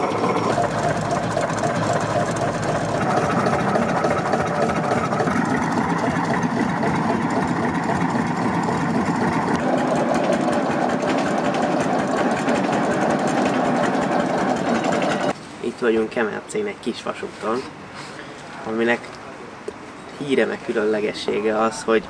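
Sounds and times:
diesel locomotive engine running: 0.0s - 15.4s.

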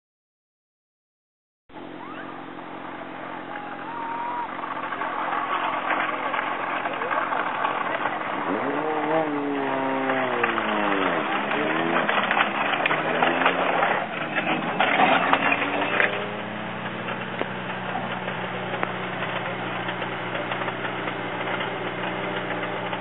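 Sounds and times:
car engine idling: 1.7s - 23.0s
gravel crackling: 1.9s - 23.0s
rally car speeding past: 3.1s - 17.2s.

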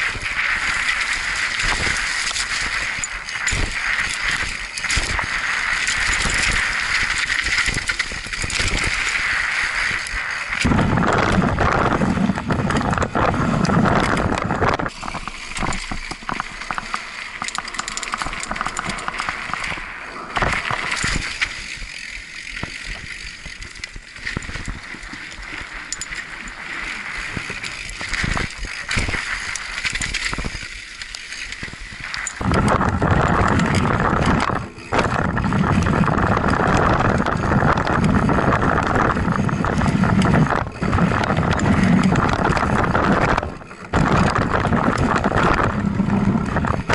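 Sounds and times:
bike rattling: 0.0s - 46.9s
bike tyre noise: 0.0s - 46.9s
low rumble: 9.8s - 16.9s.

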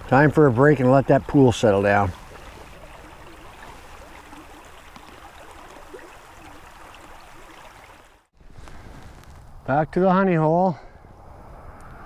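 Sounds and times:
brook flowing over rocks: 0.0s - 8.3s.

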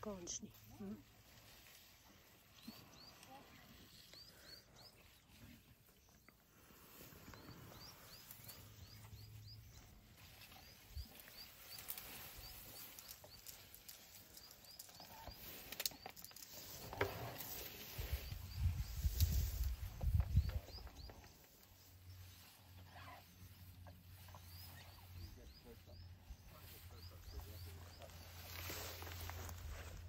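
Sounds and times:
elephant chewing: 0.5s - 18.3s, 20.8s - 25.2s
elephant moving: 0.5s - 30.0s.

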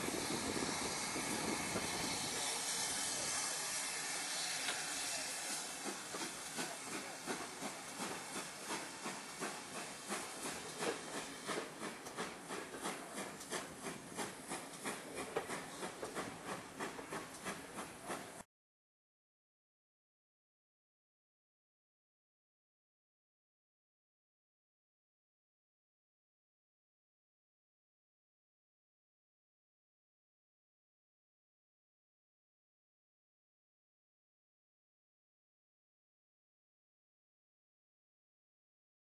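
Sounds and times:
hiss of steam: 0.0s - 18.4s
steam train chugging beat: 0.0s - 18.4s.

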